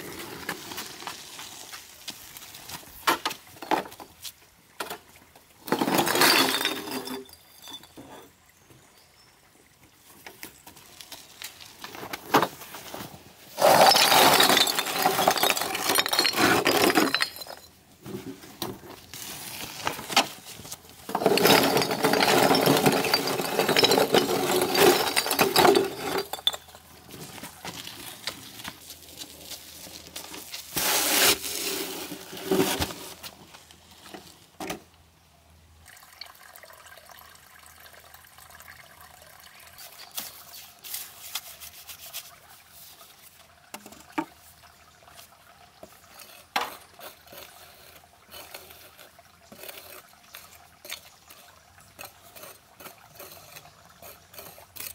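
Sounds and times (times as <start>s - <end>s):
clay bricks clattering: 4.8s - 8.4s, 13.5s - 33.2s
bricks hitting metal wheelbarrow: 5.6s - 7.3s, 13.6s - 18.8s, 21.1s - 26.7s.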